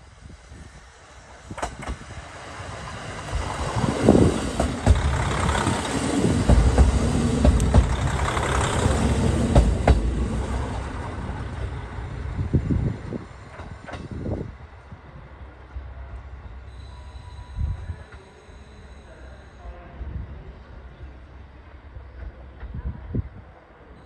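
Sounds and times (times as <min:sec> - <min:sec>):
train wheels rumbling on rails: 0:00.0 - 0:18.3
diesel train engine running: 0:01.1 - 0:16.9.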